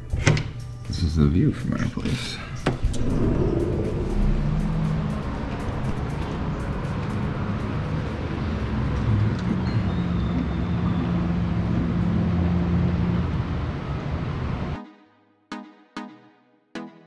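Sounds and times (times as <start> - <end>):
steady low hum: 2.6 - 8.1
wind buffeting microphone: 2.8 - 6.9.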